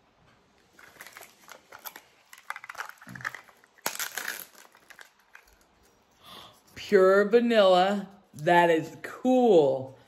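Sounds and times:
plastic wrapper crinkling: 0.6s - 6.0s.

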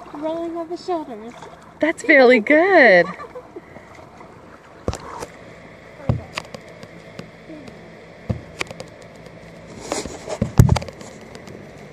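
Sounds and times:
water sloshing and splashing: 0.0s - 11.9s
low thump: 6.0s - 6.6s, 8.3s - 8.9s.

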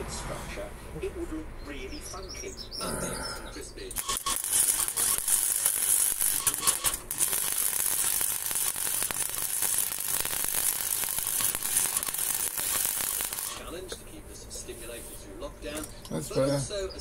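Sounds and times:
welder arc crackling: 3.9s - 14.0s.

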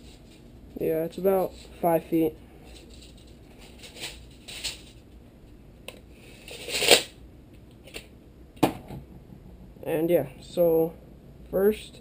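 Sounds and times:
tape measure retracting: 6.4s - 7.1s.

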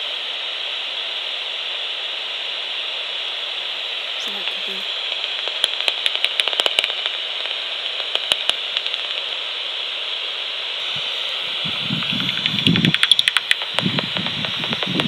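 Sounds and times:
bat detector hiss: 0.0s - 15.0s
bat echolocation clicks: 4.2s - 9.5s, 11.8s - 15.0s
low muffled rumbling: 10.8s - 15.0s.

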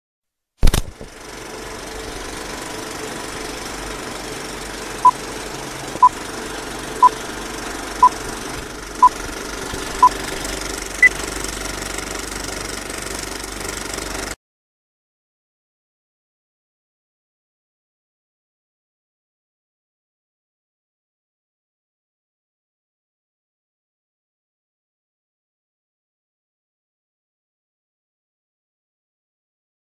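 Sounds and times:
film projector running: 0.6s - 14.4s.

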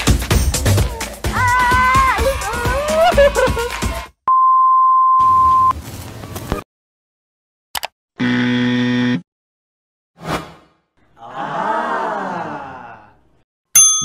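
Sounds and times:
music: 0.0s - 4.2s.

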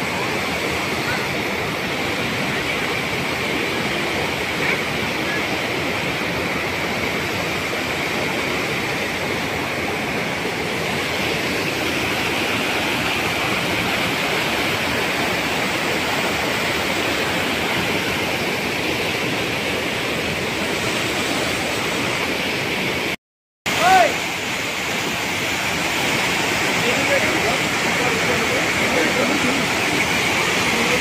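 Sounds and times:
waterfall rushing over rocks: 0.0s - 31.0s.

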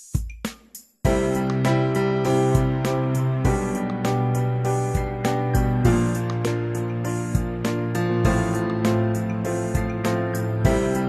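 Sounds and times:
instrumental background music: 0.0s - 11.0s.

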